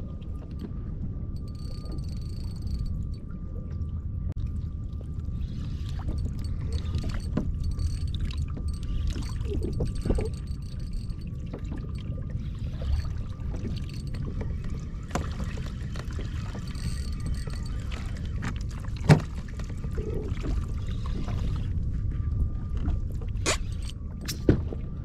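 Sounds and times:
wind rumble on microphone: 0:00.0 - 0:25.0
fishing reel clicking and creaking: 0:01.4 - 0:03.2, 0:05.4 - 0:18.6, 0:23.4 - 0:24.4.

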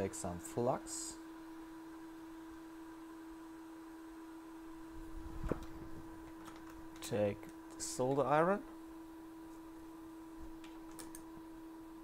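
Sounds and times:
steady pitched hum: 0:00.0 - 0:12.0.

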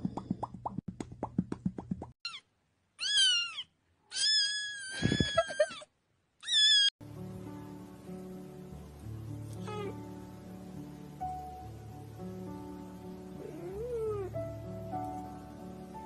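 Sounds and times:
kitten meowing: 0:02.3 - 0:05.7, 0:06.4 - 0:06.9, 0:09.6 - 0:10.0
background music with held notes: 0:07.0 - 0:16.0.

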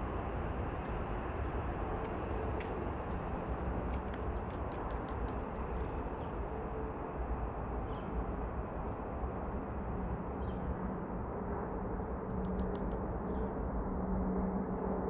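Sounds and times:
faint clicks: 0:03.6 - 0:06.0, 0:12.3 - 0:13.0.

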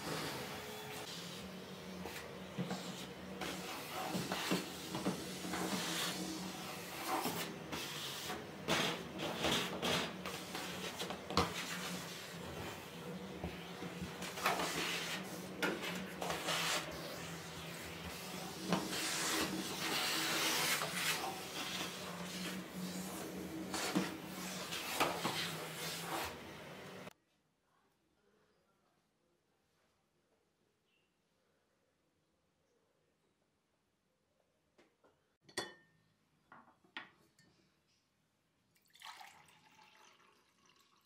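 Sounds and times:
nozzle scraping along floor: 0:00.0 - 0:27.1
vacuum cleaner running: 0:00.0 - 0:27.1.

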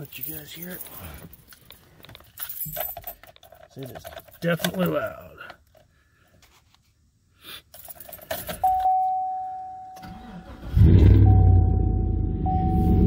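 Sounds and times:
engine cranking and starting: 0:10.0 - 0:11.4
steady electronic tone: 0:10.8 - 0:13.0.

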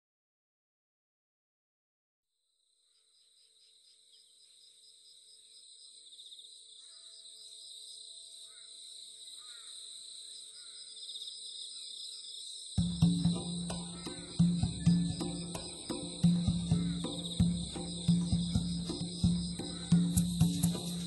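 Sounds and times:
faint chirps: 0:02.8 - 0:21.0
insects trilling: 0:02.9 - 0:21.0
music: 0:12.8 - 0:21.0.

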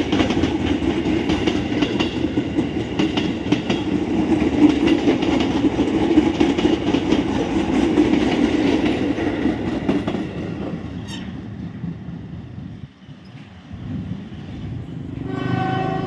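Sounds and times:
electric train passing: 0:00.0 - 0:16.0.

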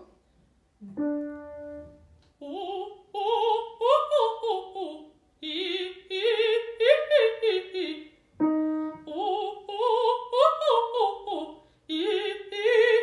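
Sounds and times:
piano note: 0:00.8 - 0:02.2
woman singing operatic vocalises: 0:02.4 - 0:13.0.

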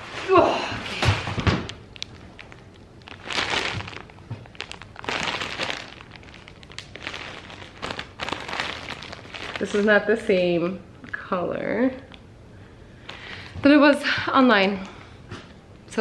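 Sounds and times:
plastic wrap rustling: 0:00.0 - 0:11.2.

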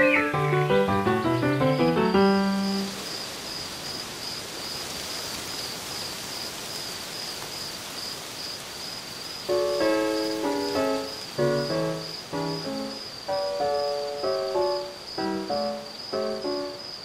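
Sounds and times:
music: 0:00.0 - 0:03.0, 0:09.5 - 0:16.9
cricket chirping: 0:00.0 - 0:17.0.

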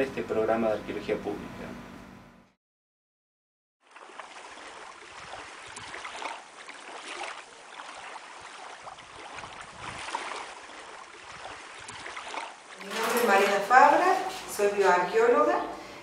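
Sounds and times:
small waves lapping on rocky shore: 0:03.8 - 0:13.9.

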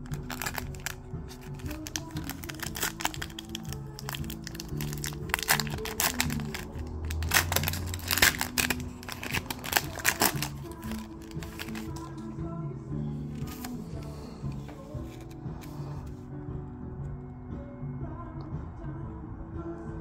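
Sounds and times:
foil wrapper crinkling: 0:00.0 - 0:12.1
background music: 0:00.0 - 0:20.0.

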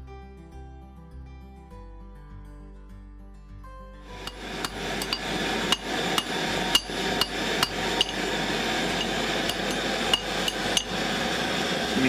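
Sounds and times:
hammer striking steel on anvil: 0:04.1 - 0:11.0
gas torch flame hissing: 0:04.1 - 0:12.0.

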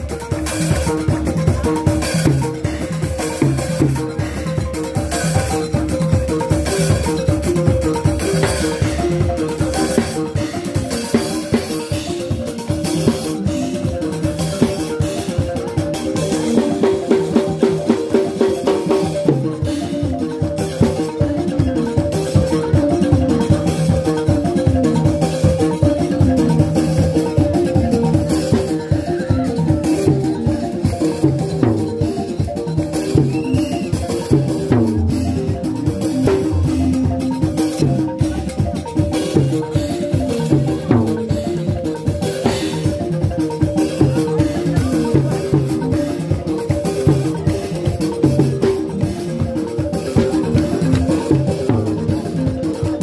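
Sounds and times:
balafon playing: 0:00.0 - 0:53.0
drums beating: 0:00.0 - 0:53.0.

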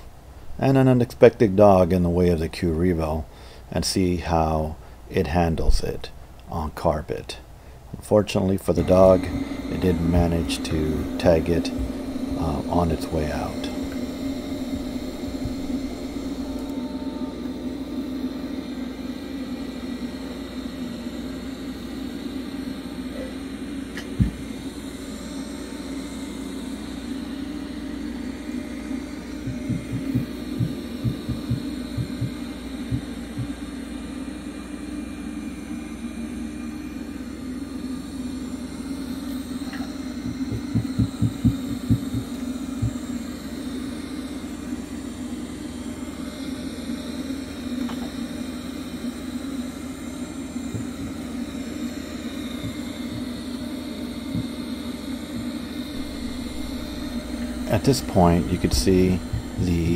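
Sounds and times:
robot vacuum motor hum: 0:08.7 - 0:59.9
short low thuds: 0:59.2 - 0:59.6.

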